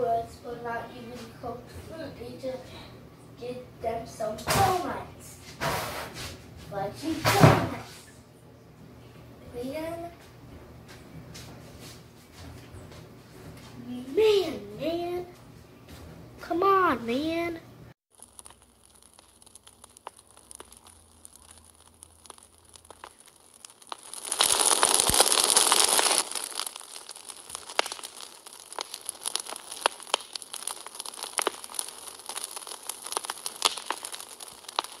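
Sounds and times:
wood fire crackling: 0:16.4 - 0:35.0.

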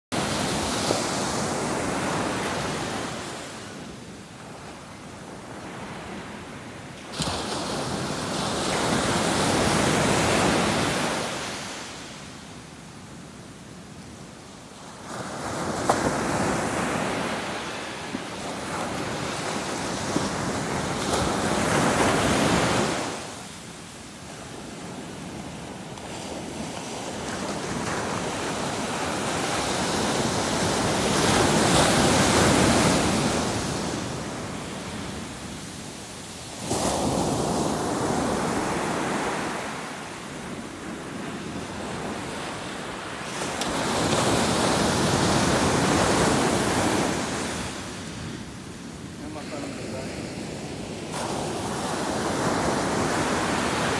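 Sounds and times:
surf breaking on beach: 0:07.0 - 0:12.0, 0:15.1 - 0:23.4, 0:24.8 - 0:48.1.

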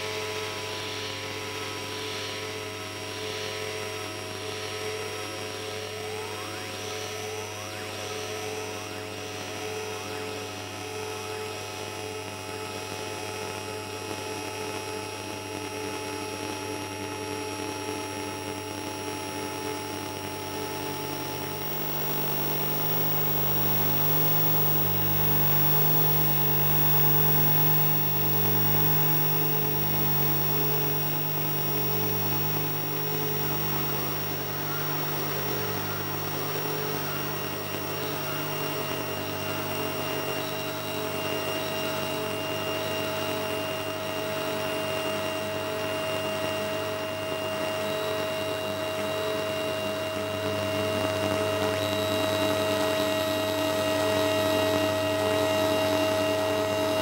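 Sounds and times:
stacked electronic drone tones: 0:20.2 - 0:40.5
pulsing high tone: 0:20.2 - 0:41.8
low hum: 0:20.4 - 0:40.5.

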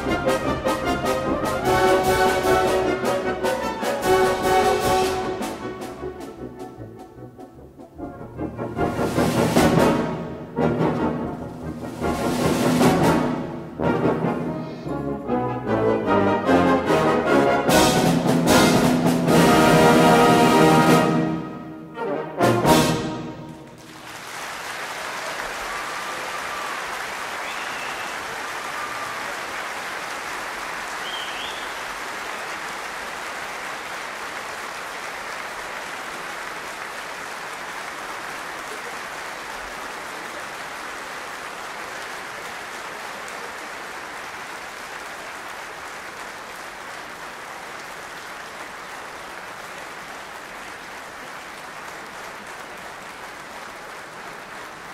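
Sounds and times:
audience applauding: 0:00.0 - 0:06.0, 0:23.2 - 0:54.9.

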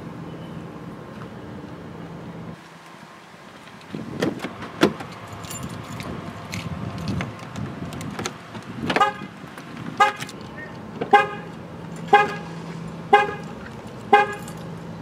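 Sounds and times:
keys jangling: 0:05.1 - 0:07.2, 0:12.8 - 0:14.8.

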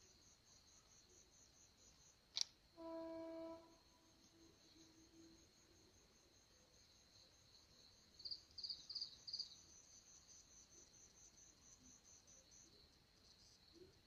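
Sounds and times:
close cricket chirping loudly: 0:02.8 - 0:12.9
crickets trilling: 0:02.8 - 0:14.0.

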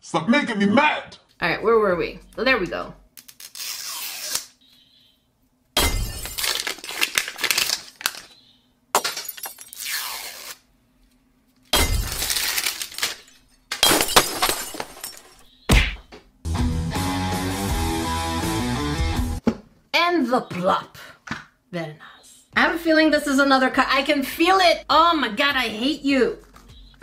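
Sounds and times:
plastic wrapping crinkling: 0:06.3 - 0:08.4, 0:12.1 - 0:13.2.

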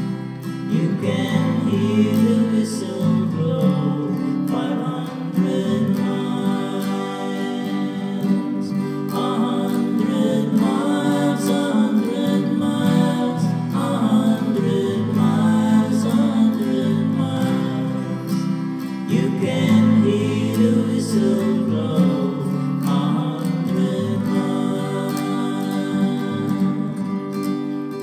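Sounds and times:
guitar background music: 0:00.0 - 0:28.0.

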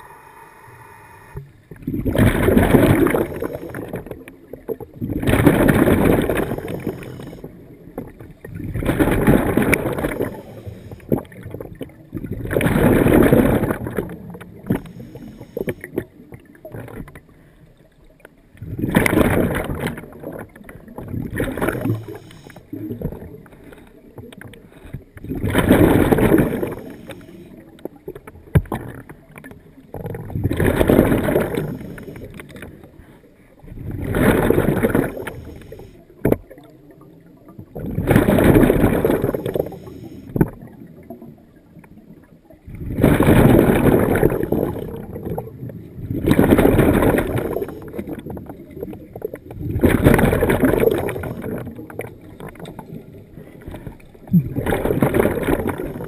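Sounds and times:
diver breathing through regulator: 0:00.0 - 0:01.5, 0:10.1 - 0:11.1, 0:21.8 - 0:22.8, 0:35.1 - 0:36.0
scuba exhaust bubbles: 0:00.0 - 0:56.0.

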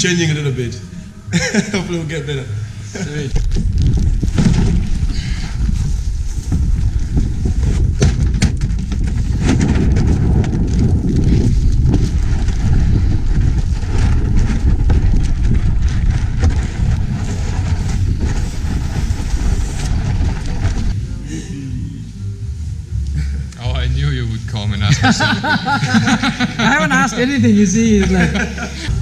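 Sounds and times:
wind buffeting microphone: 0:02.9 - 0:21.2.

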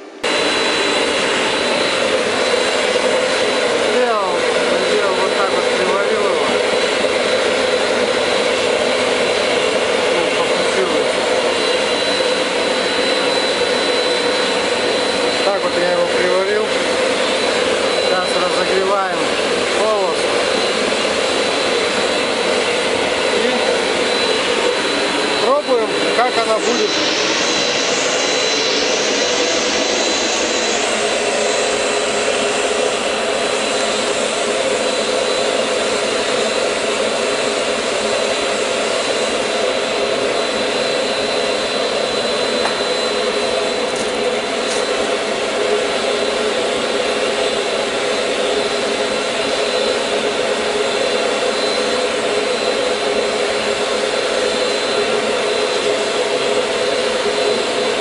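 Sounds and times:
electric air blower humming: 0:00.0 - 0:58.0.

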